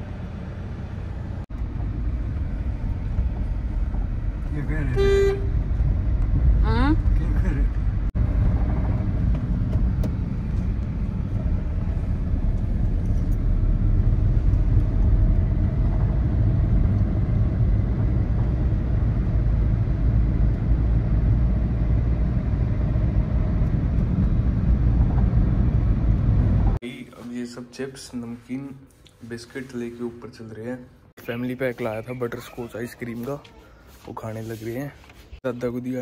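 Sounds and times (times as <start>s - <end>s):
car road and engine rumble: 0.0s - 26.8s.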